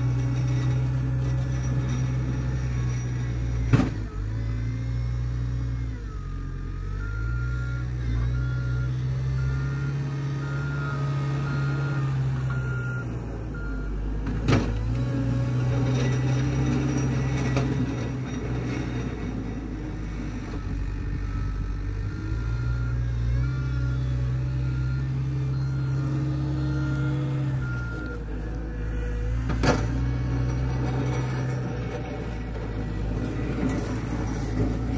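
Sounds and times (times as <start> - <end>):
diesel loader engine revving: 0.0 - 34.9
backup alarm beeping: 20.6 - 28.3.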